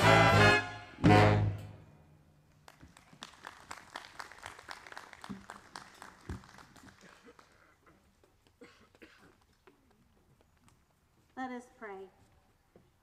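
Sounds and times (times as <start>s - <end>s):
jazz orchestra final chord: 0.0s - 1.8s
light applause: 2.6s - 8.5s.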